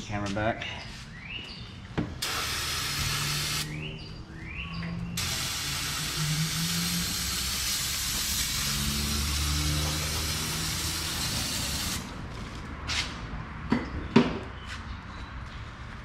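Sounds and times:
aerosol can spraying: 0:02.2 - 0:03.7, 0:05.2 - 0:12.1.

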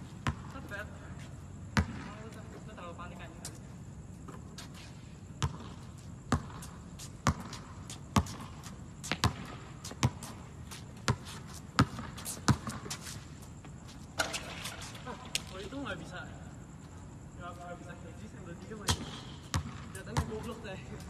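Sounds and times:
basketball bouncing on hard court: 0:00.2 - 0:00.8, 0:01.8 - 0:02.3, 0:05.4 - 0:13.0, 0:18.9 - 0:20.6.

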